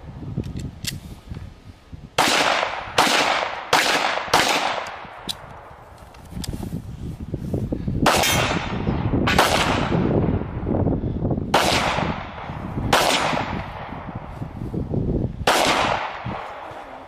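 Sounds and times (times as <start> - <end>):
handgun shots with ringing tail: 8.0 - 10.1, 11.5 - 13.9, 15.5 - 16.7.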